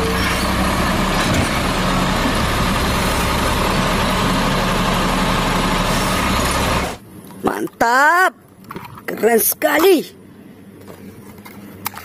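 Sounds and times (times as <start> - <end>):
garbage truck engine running: 0.0 - 7.0
hydraulic arm lifting cart: 0.0 - 7.0.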